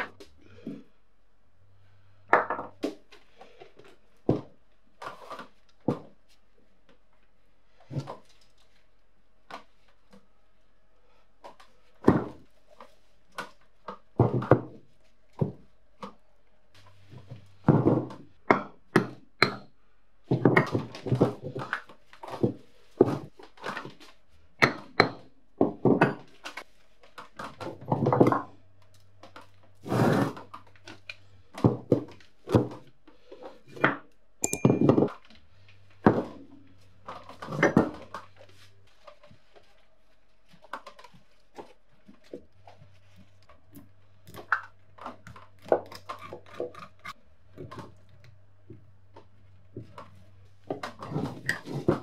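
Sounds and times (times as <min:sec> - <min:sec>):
metal clinks and scraping: 0:34.4 - 0:35.1.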